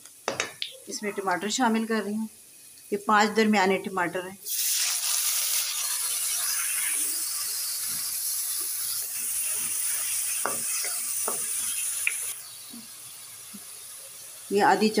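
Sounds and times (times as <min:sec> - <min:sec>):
tomatoes sizzling in hot oil: 0:00.0 - 0:15.0
spoon scraping a pan: 0:05.8 - 0:11.9.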